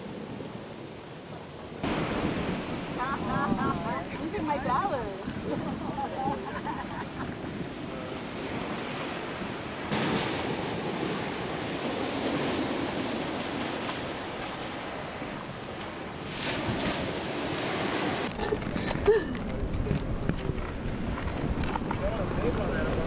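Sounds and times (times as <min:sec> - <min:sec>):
ocean surf: 0:00.0 - 0:23.0
wind buffeting microphone: 0:01.7 - 0:23.0.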